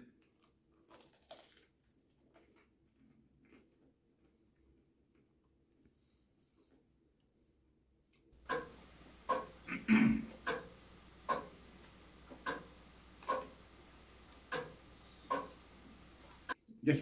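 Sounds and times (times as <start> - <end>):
person chewing crunchy bread: 0.0 - 5.6.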